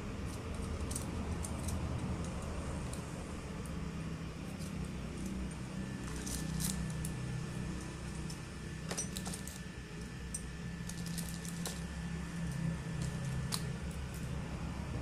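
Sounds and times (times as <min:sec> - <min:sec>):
steady low hum: 0:00.0 - 0:15.0
metal lock picks clinking: 0:00.2 - 0:03.1, 0:06.0 - 0:09.7.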